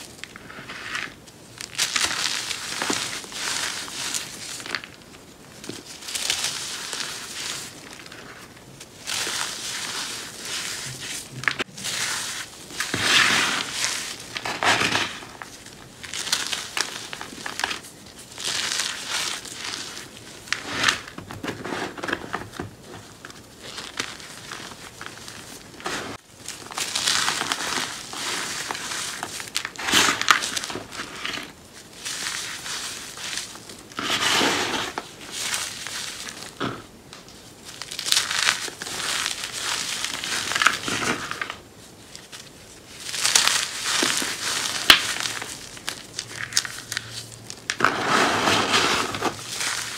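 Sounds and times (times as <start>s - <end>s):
hands crunching dried cornstarch: 0.0s - 21.2s, 23.1s - 36.8s, 37.6s - 41.6s, 42.2s - 49.9s.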